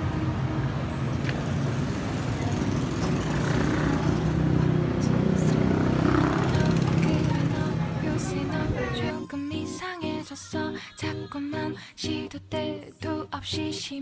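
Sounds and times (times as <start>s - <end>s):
car rumbling on the move: 0.0s - 9.0s.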